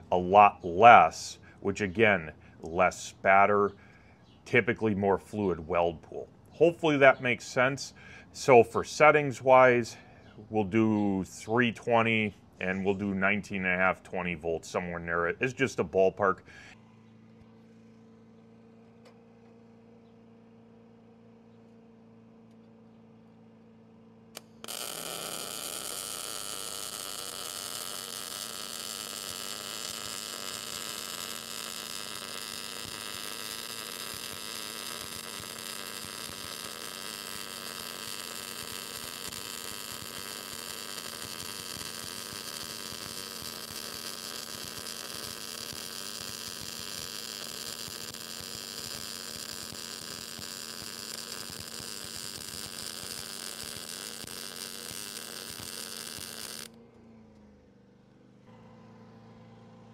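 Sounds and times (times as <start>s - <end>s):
welding arc crackling buzz: 0.0s - 4.0s, 6.1s - 10.1s, 24.3s - 56.8s.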